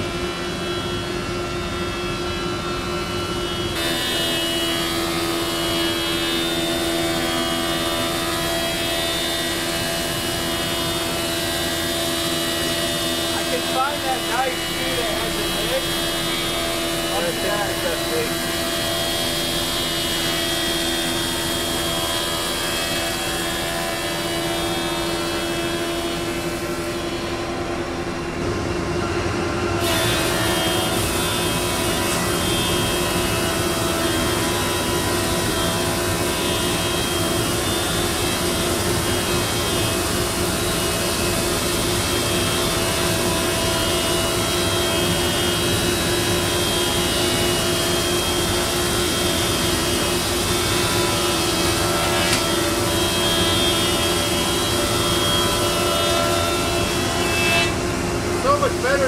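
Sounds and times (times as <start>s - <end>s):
dust collector hum: 0.0s - 59.0s
thickness planer running: 0.0s - 59.0s.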